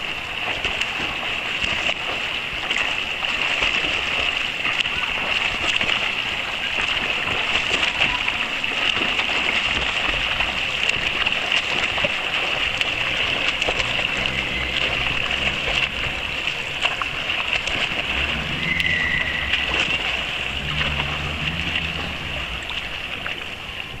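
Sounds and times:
swimmers splashing pool water: 0.0 - 24.0.

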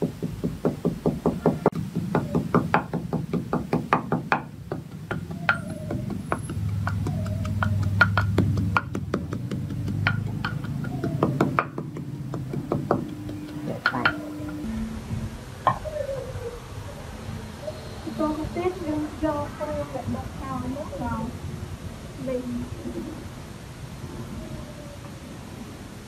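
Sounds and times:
pestle pounding in mortar: 0.0 - 14.7.

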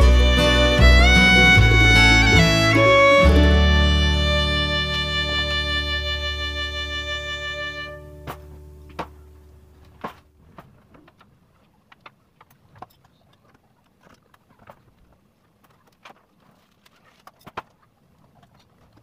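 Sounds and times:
background music: 0.0 - 9.5.

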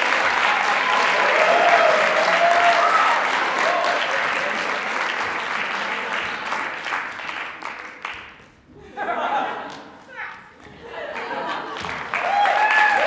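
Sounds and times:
voices cheering: 0.0 - 4.8, 12.1 - 13.0
audience applauding: 0.0 - 8.4, 10.9 - 13.0.

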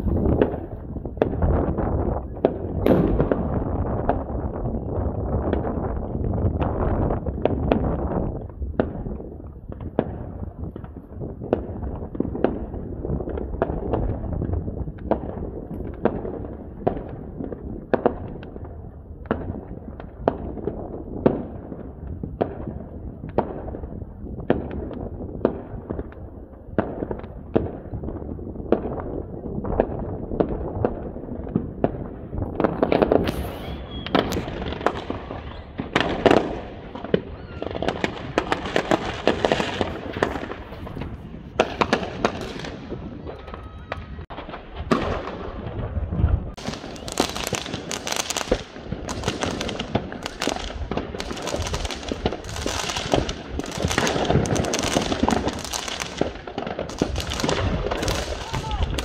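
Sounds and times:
firework shells bursting: 32.8 - 42.8.

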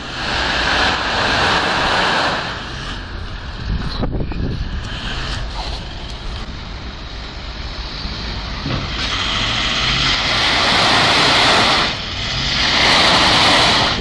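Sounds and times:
suv engine revving: 0.0 - 14.0
tyres spinning in mud: 7.8 - 14.0.

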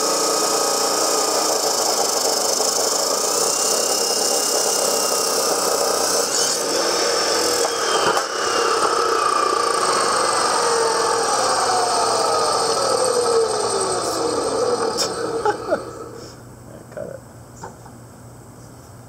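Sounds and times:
chop saw grinding through steel: 0.0 - 16.3
motor winding down whine: 0.0 - 16.4.

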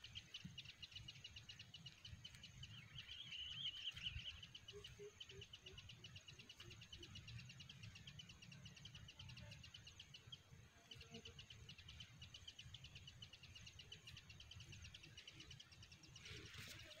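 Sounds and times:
fast insect chirping: 0.0 - 17.0.

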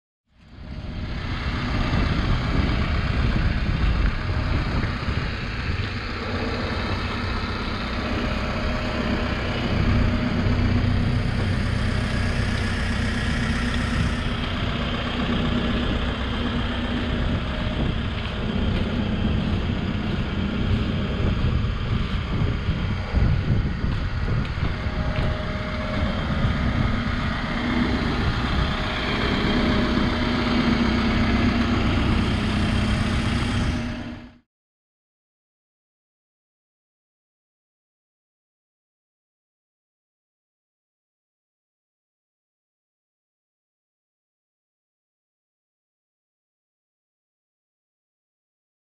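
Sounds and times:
diesel engine idling: 0.4 - 34.4.

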